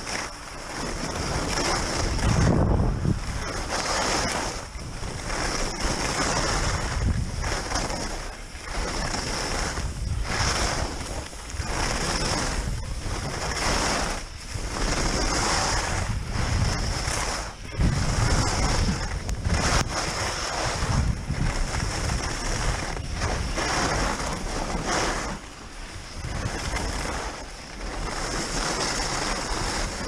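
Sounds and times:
skis scraping over packed snow: 0:00.0 - 0:30.0
wind buffeting microphone: 0:00.0 - 0:30.0.

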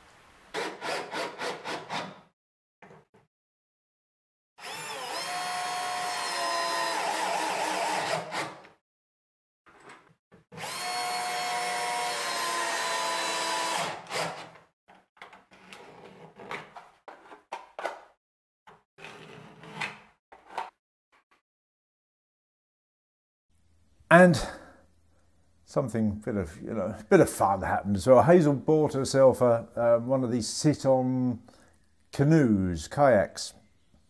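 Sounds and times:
power drill whining into wood: 0:04.6 - 0:08.7, 0:10.5 - 0:14.6.

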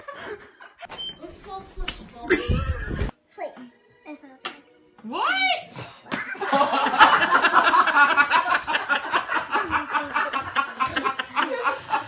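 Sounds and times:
people laughing: 0:02.3 - 0:03.1, 0:06.3 - 0:12.0.

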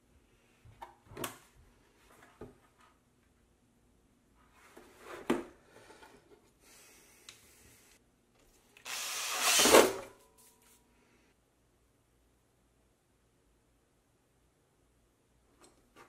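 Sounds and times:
cordless drill drilling into plastic: 0:08.9 - 0:10.1.

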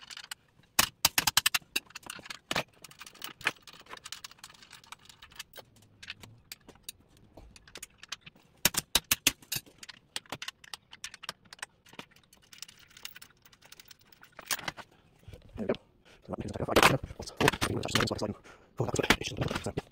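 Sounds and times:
metallic clicks and clinks: 0:00.0 - 0:14.9.

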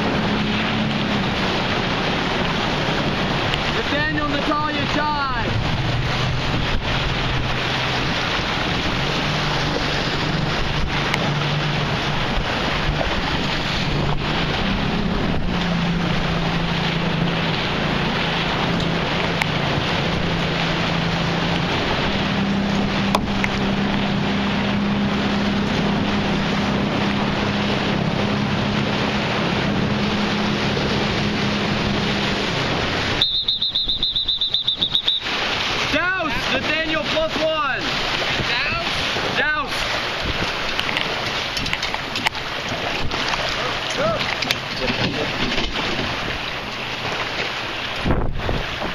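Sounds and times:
wind on microphone: 0:00.0 - 0:33.2, 0:38.1 - 0:46.6, 0:47.8 - 0:48.9
outboard motor hum: 0:00.0 - 0:48.9
rushing water: 0:00.0 - 0:48.9
high repeating beep: 0:33.2 - 0:35.2.

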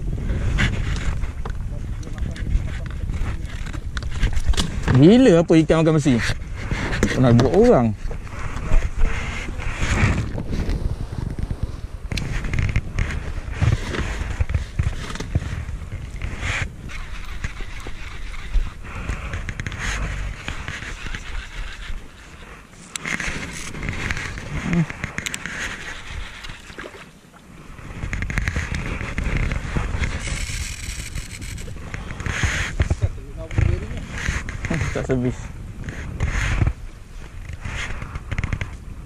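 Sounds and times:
wind buffeting microphone: 0:00.0 - 0:39.0
water lapping against boat: 0:06.4 - 0:35.1.

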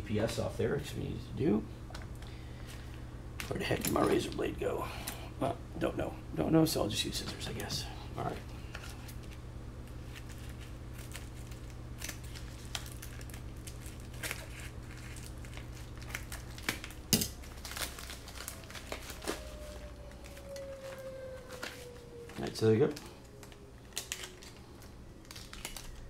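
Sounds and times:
steady low hum: 0:00.0 - 0:26.0
plastic pouch crinkling: 0:07.6 - 0:26.0.

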